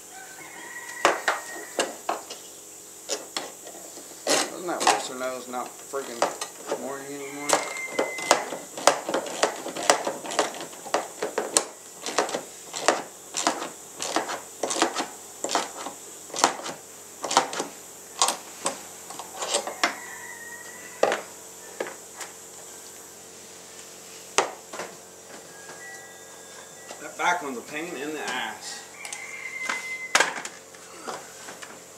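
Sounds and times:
short squeak: 0:07.6 - 0:08.4, 0:29.1 - 0:30.2.

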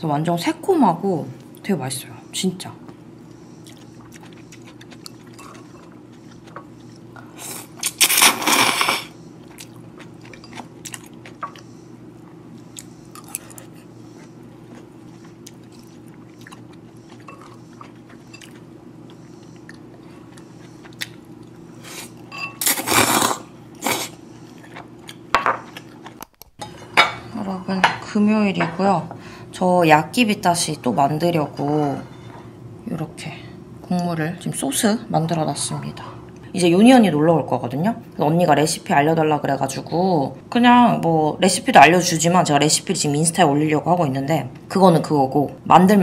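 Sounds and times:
steady low hum: 0:00.0 - 0:46.0
chewing: 0:03.2 - 0:08.2, 0:09.4 - 0:22.2
person slurping noodles: 0:07.4 - 0:09.1, 0:21.8 - 0:24.2.

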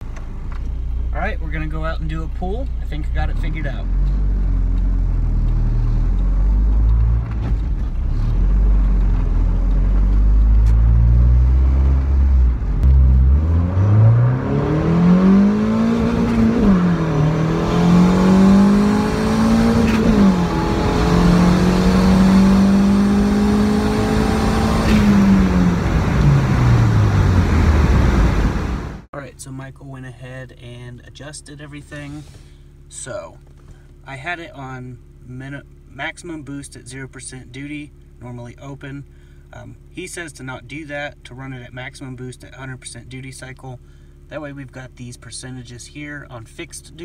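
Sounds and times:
car engine revving: 0:00.0 - 0:29.1.

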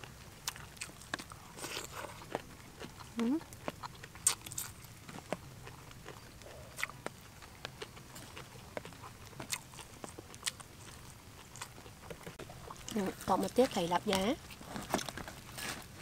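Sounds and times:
person chewing with lip smacks: 0:00.4 - 0:13.0.

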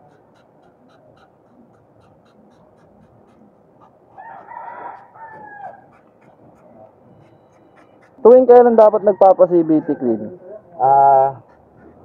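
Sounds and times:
rooster crowing: 0:04.1 - 0:06.0, 0:08.6 - 0:10.5.

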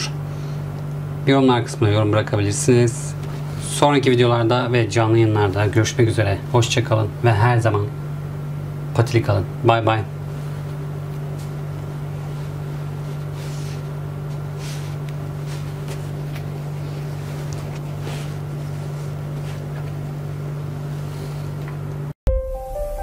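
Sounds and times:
low machine hum: 0:00.0 - 0:22.2
fabric rustling: 0:10.3 - 0:20.1.

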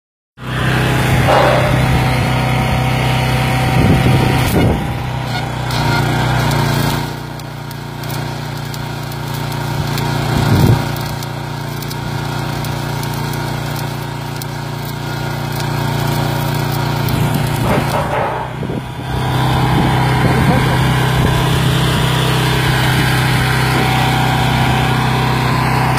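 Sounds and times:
generator engine running: 0:00.4 - 0:25.9
arc welding crackling sizzle: 0:04.3 - 0:19.2.

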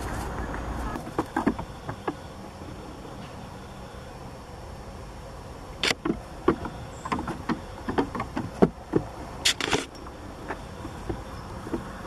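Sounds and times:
goat hooves on wood: 0:00.0 - 0:02.6, 0:05.9 - 0:12.0.

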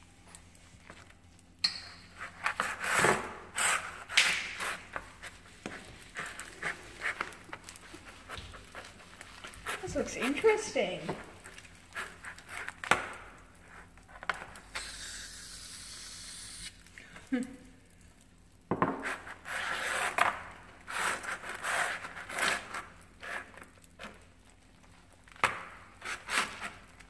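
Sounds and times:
wet rubbing and scraping: 0:02.0 - 0:16.7, 0:19.0 - 0:27.0
aerosol can spraying: 0:14.7 - 0:16.8.

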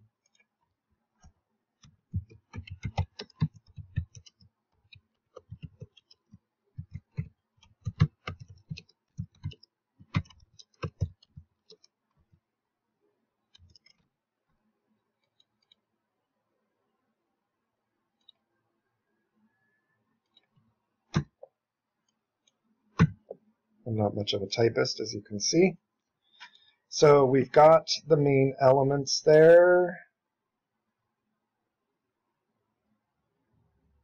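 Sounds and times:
computer keyboard typing: 0:01.8 - 0:11.9, 0:13.6 - 0:14.0.

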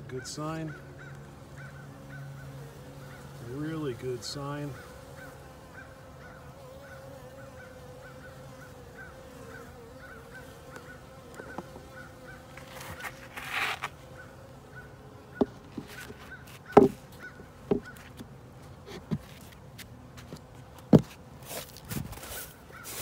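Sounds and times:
honeybees humming: 0:00.0 - 0:23.0
plastic lid scraping: 0:12.6 - 0:14.0, 0:15.4 - 0:17.0
knocks on beehive: 0:16.7 - 0:17.0, 0:17.7 - 0:18.0.

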